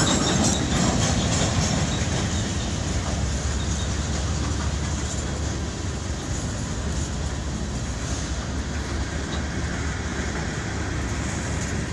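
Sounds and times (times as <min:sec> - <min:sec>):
clicking over rail joints: 0:00.0 - 0:11.9
steel wheels rumbling on rail: 0:00.0 - 0:11.9.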